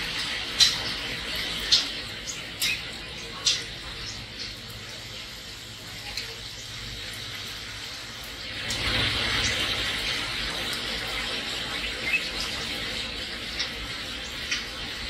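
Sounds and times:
steady rain hissing: 0.0s - 15.0s.

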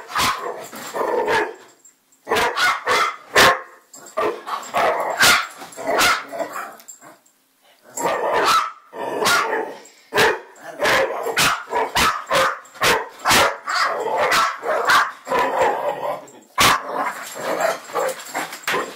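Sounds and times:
dog barking: 0.0s - 0.6s, 2.3s - 6.3s, 8.0s - 15.4s, 16.6s - 16.9s.

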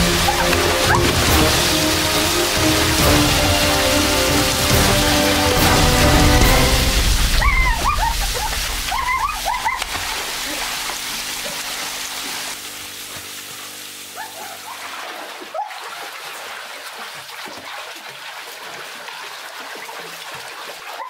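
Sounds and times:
background music: 0.0s - 8.2s
pool water splashing: 0.0s - 21.0s
water drips: 0.0s - 21.0s.

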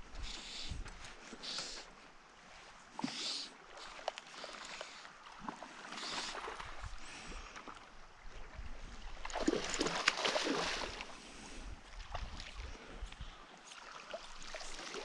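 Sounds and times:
fish thrashing and splashing water: 9.2s - 11.1s.

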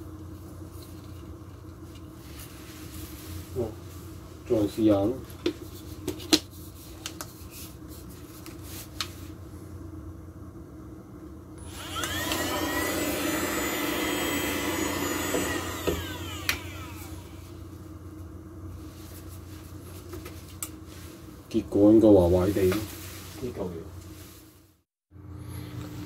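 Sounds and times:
vacuum motor whining: 11.6s - 17.7s.

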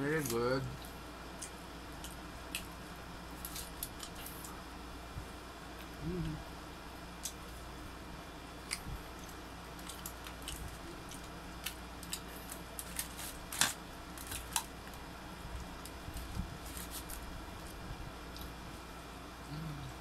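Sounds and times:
faint low hum: 0.0s - 20.0s
chicken pulled apart on foil: 12.8s - 14.7s.

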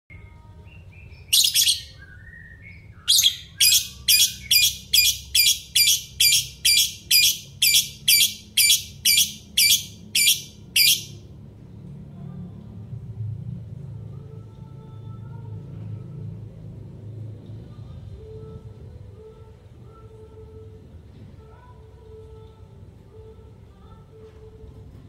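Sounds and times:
soft bird chirps: 0.7s - 11.2s.

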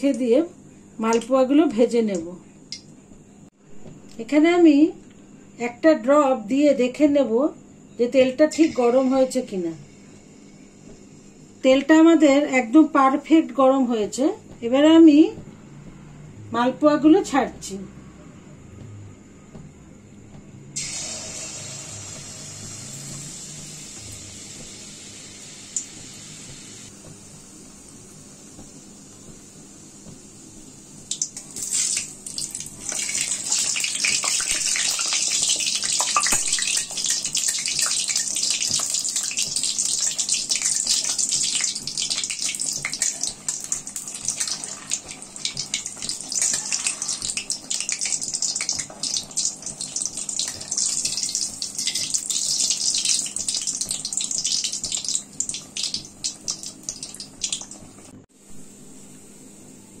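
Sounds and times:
batter deep-frying in oil: 20.8s - 58.2s.

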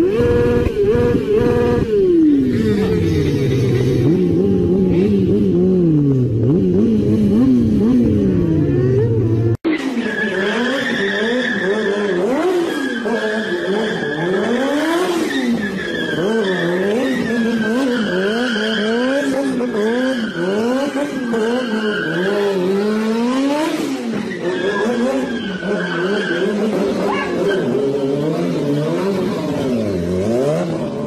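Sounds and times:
vehicle engine revving: 0.0s - 31.0s
tyres squealing: 24.1s - 29.2s.

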